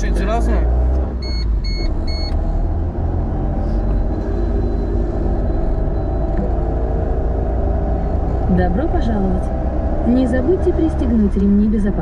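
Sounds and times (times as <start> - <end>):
car engine rumble: 0.0 - 12.0
road noise inside cabin: 0.0 - 12.0
short electronic beep: 1.2 - 2.4.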